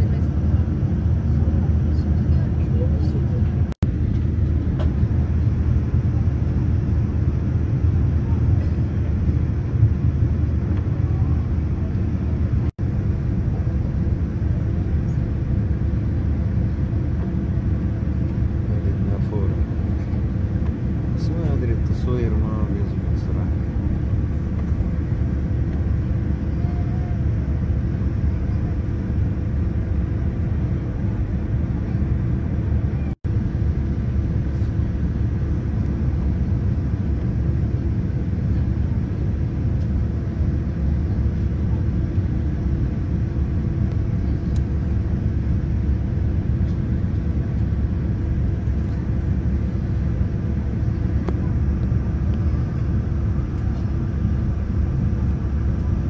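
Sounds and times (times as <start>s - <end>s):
airliner cabin roar: 0.0s - 56.0s.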